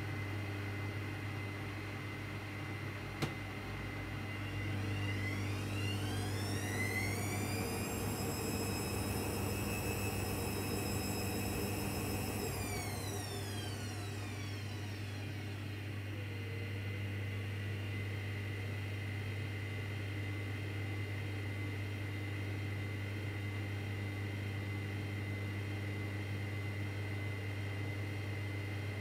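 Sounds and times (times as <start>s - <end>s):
washing machine drum whine: 3.2s - 15.7s.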